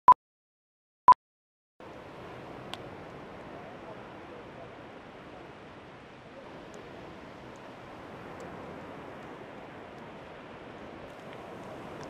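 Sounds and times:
surf breaking on beach: 0:01.8 - 0:12.0.

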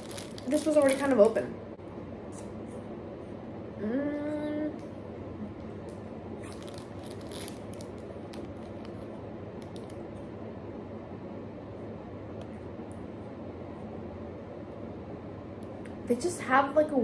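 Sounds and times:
plastic bag crinkling: 0:00.0 - 0:01.4, 0:06.4 - 0:10.1
person humming: 0:03.8 - 0:04.8.

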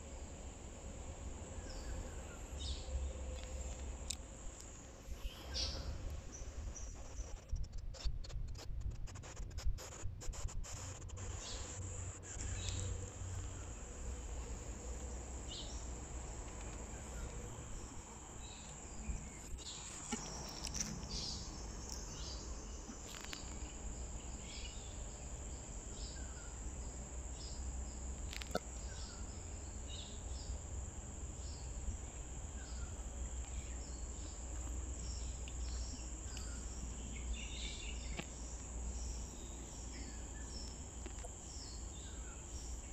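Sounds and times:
bird chirps: 0:05.2 - 0:07.4.

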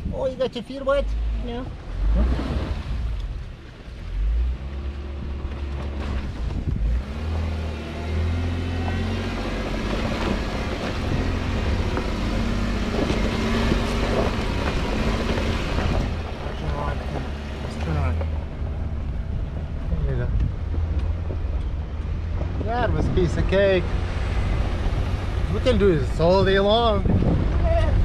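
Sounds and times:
car engine running: 0:00.0 - 0:28.0
wind on microphone: 0:06.1 - 0:07.4, 0:18.6 - 0:28.0
tyres on gravel: 0:08.8 - 0:28.0.

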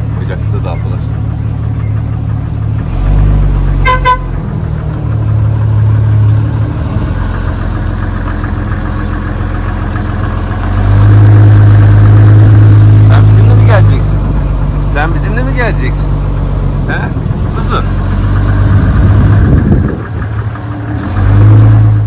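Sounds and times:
car engine running: 0:00.0 - 0:22.0
car horn toot: 0:03.8 - 0:04.4.

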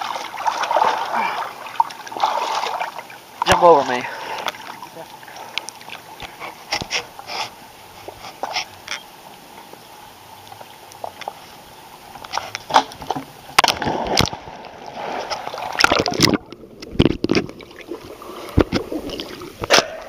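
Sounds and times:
rush of bubbles and churning water: 0:00.0 - 0:20.0
bubbly clicks underwater: 0:15.3 - 0:20.0.

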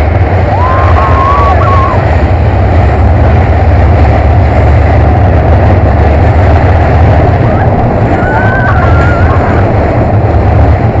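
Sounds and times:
roller coaster wheels rumbling: 0:00.0 - 0:11.0
wind on microphone: 0:00.0 - 0:11.0
high-pitched squeal: 0:00.4 - 0:02.2, 0:07.2 - 0:10.4.

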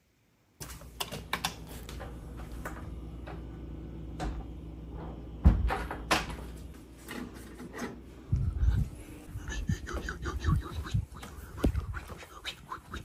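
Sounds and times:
steady low hum: 0:00.6 - 0:13.0
door shutting with thump: 0:05.4 - 0:06.4.

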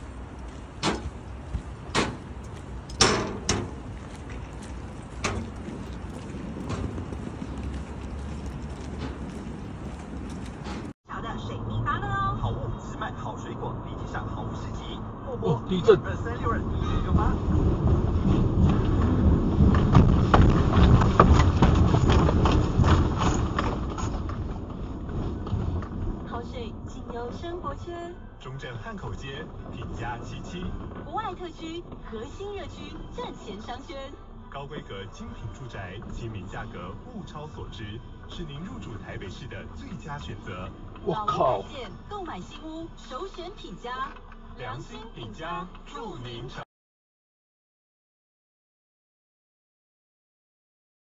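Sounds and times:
deep earthquake rumble: 0:00.0 - 0:11.0, 0:16.1 - 0:33.3
footsteps on walkway: 0:00.0 - 0:11.0
low steady rumble: 0:00.0 - 0:12.9.

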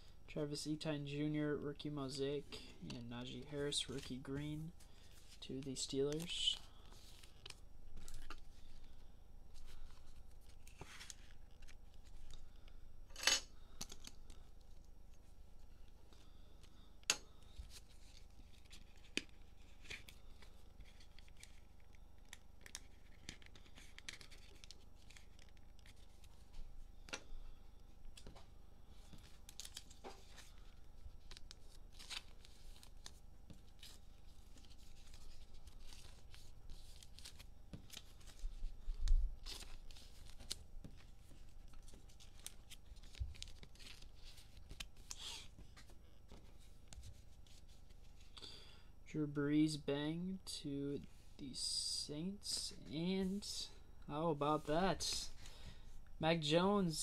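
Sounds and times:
cellophane crinkling and tearing: 0:17.7 - 0:26.5, 0:29.1 - 0:45.8.

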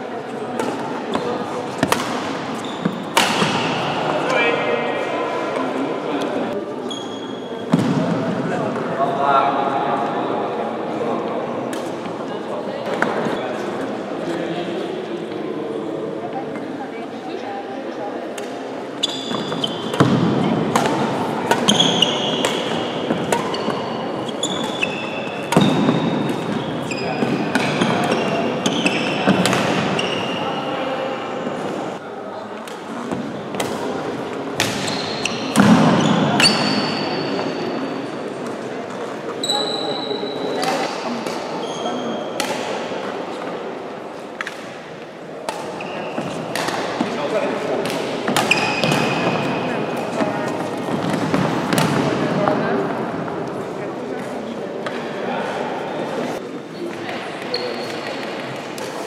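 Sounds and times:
sports hall background noise: 0:00.0 - 0:59.0
rackets striking shuttlecock: 0:00.6 - 0:03.7, 0:19.3 - 0:26.6, 0:28.8 - 0:30.0, 0:42.4 - 0:42.8, 0:45.4 - 0:47.2, 0:47.8 - 0:49.4
shoes squeaking on floor: 0:02.5 - 0:03.2, 0:06.8 - 0:07.8, 0:18.9 - 0:20.2, 0:21.4 - 0:32.0, 0:34.8 - 0:37.8, 0:39.3 - 0:40.9, 0:41.5 - 0:42.3, 0:45.8 - 0:46.6, 0:48.4 - 0:51.7, 0:57.4 - 0:58.2.

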